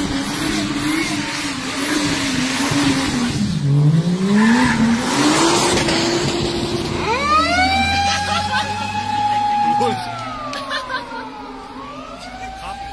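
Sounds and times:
car engine revving: 0.0s - 12.9s
tyres squealing and skidding: 4.2s - 6.1s, 6.9s - 12.9s.

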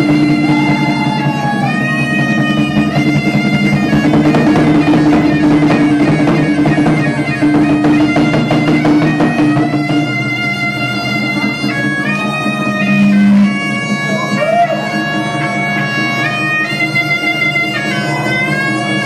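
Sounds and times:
bass drum beating: 0.0s - 14.1s
bagpipe playing a lively tune: 0.0s - 19.0s.

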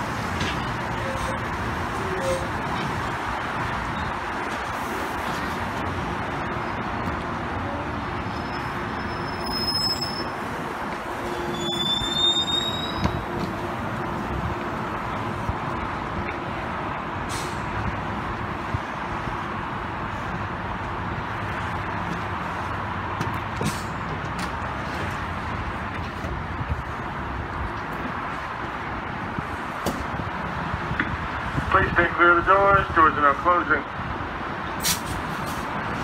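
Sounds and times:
train wheels rumbling on track: 0.0s - 36.0s
high squeals: 8.3s - 10.4s, 11.2s - 13.3s.

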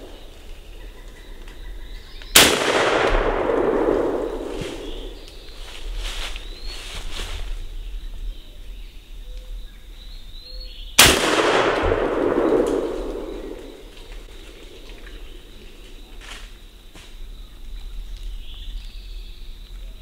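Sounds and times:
gunshot with echo: 2.4s - 5.2s, 11.0s - 14.1s.

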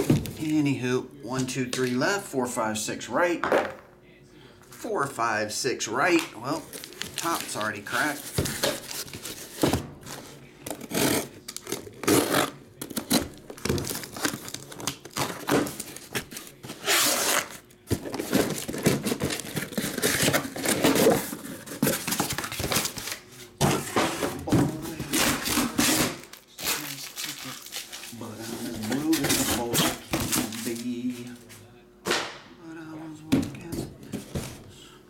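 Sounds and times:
cardboard and tape rustling and tearing: 6.4s - 31.5s
boxes scraping and knocking: 23.6s - 26.0s.

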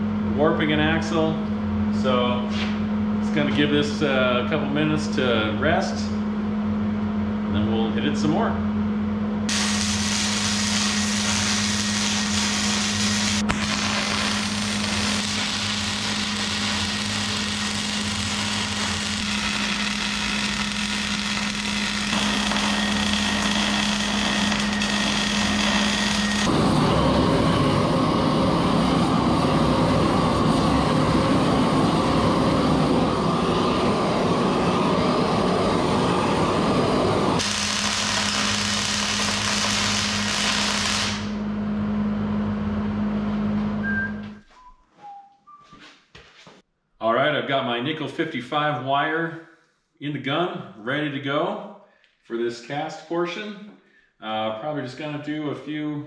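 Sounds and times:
steady low hum: 0.0s - 44.4s
welding arc crackling: 9.5s - 26.8s, 37.2s - 41.4s.

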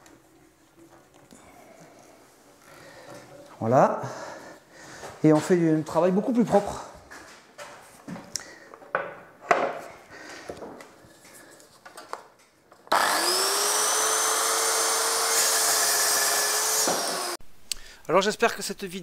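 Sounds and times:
circular saw cutting board: 12.9s - 17.4s.

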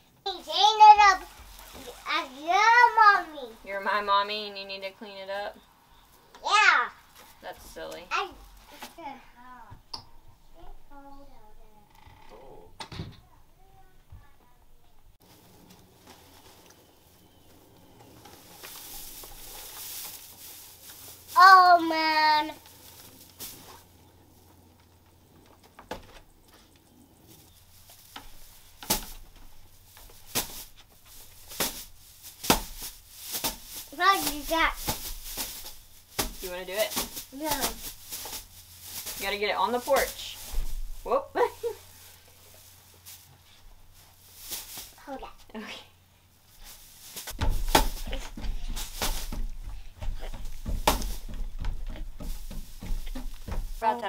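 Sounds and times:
cloth rustling: 0.3s - 4.4s, 15.2s - 54.0s
dull thumps of threshing wheat: 0.4s - 4.0s, 15.2s - 24.4s, 27.3s - 45.4s, 46.5s - 54.0s
knocks and thumps on wood: 47.3s - 53.8s.

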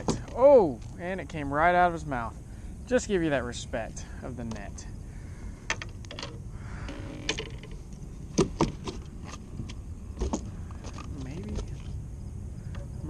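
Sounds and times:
steady low rumble: 0.0s - 13.0s
fishing gear clicks and knocks: 5.7s - 6.4s, 7.2s - 12.0s.

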